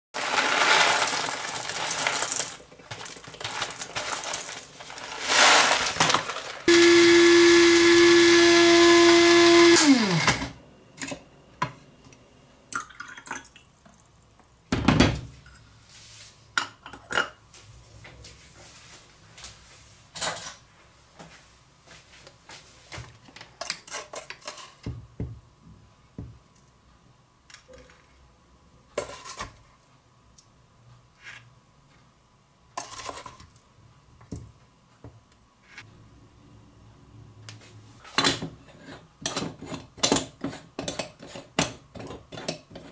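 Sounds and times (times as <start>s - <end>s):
coffee grinder whining: 0.2s - 2.6s, 3.4s - 10.6s
coffee beans rattling into grinder: 0.2s - 10.5s.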